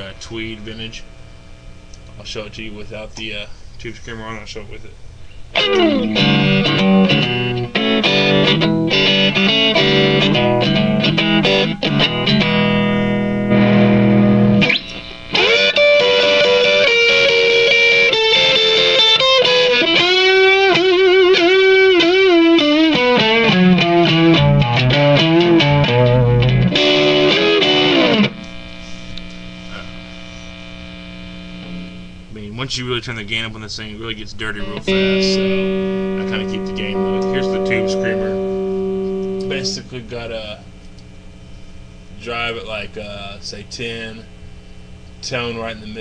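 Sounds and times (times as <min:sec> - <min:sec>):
guitar amp hum: 0:00.0 - 0:46.0
overdriven electric guitar lead: 0:05.5 - 0:32.2, 0:34.6 - 0:40.0.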